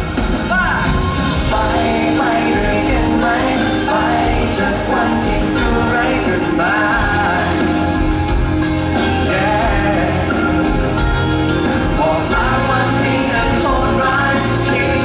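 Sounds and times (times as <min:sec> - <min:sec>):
amplified pop backing music: 0:00.0 - 0:15.0
man singing into microphone: 0:01.5 - 0:07.9, 0:09.1 - 0:10.8, 0:11.8 - 0:15.0.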